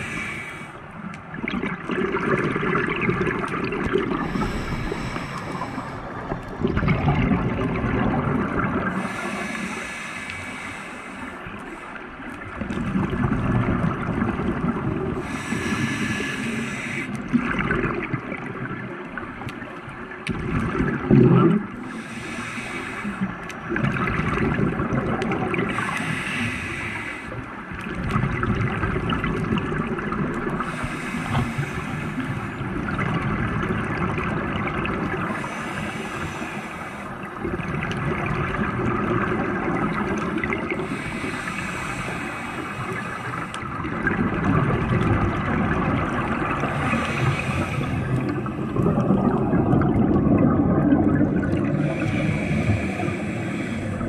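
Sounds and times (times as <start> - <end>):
diver breathing through regulator: 0.0 - 0.8, 4.0 - 6.4, 8.9 - 12.1, 15.2 - 17.2, 21.8 - 23.4, 25.7 - 27.4, 30.6 - 32.6, 35.3 - 37.4, 40.8 - 44.0, 46.5 - 49.1, 51.2 - 54.0
bubbling exhaled bubbles: 1.1 - 9.8, 12.4 - 22.0, 23.6 - 26.7, 27.7 - 36.2, 37.2 - 54.0.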